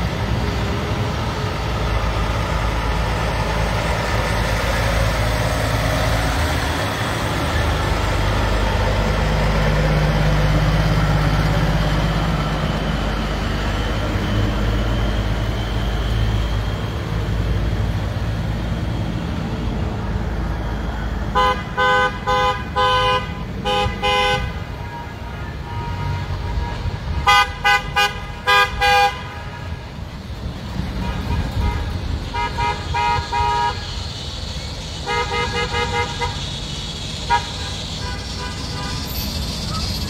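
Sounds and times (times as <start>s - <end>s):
heavy truck engines: 0.0s - 40.0s
vehicle horn honking: 21.4s - 29.8s, 31.0s - 34.0s, 35.0s - 36.5s, 37.2s - 39.2s.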